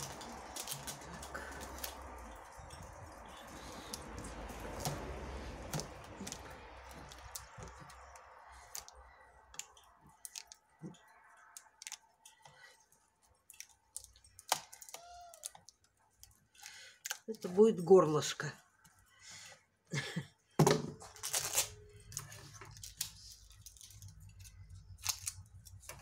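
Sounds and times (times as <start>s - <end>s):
plastic bottle crackling: 0.0s - 12.4s, 20.6s - 26.0s.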